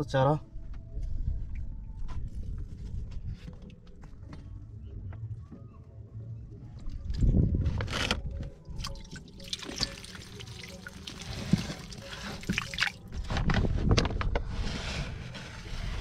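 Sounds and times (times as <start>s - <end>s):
water splashing and dripping: 8.8s - 13.1s.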